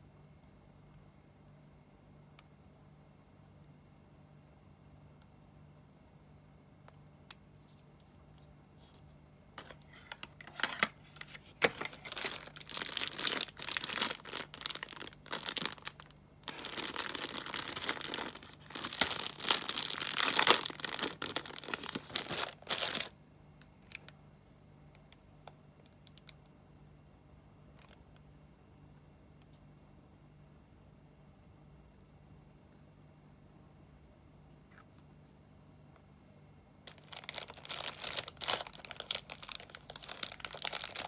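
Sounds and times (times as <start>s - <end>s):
plastic packaging crinkling: 9.6s - 23.2s, 36.8s - 41.0s.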